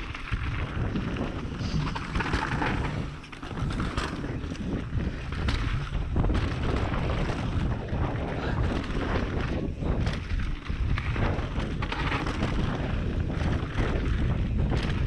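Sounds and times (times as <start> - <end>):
bike knocking and rattling: 0.0 - 15.0
tyre noise on dirt: 0.0 - 15.0
wind buffeting microphone: 0.0 - 15.0.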